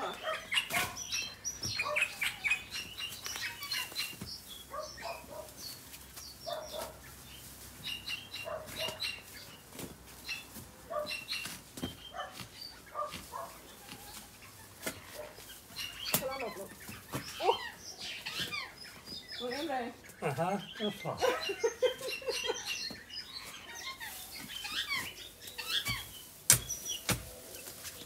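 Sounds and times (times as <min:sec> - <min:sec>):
digging knocks and scrapes: 0:08.5 - 0:17.4, 0:23.5 - 0:28.0.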